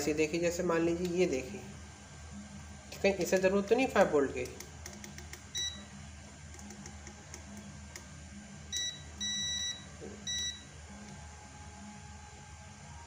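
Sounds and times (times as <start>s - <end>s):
multimeter beeps: 5.5s - 5.9s, 8.7s - 10.8s.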